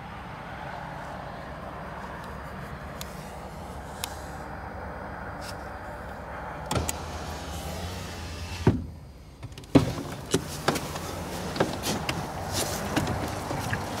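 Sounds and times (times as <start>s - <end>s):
knocks and clunks of handling: 8.7s - 14.0s.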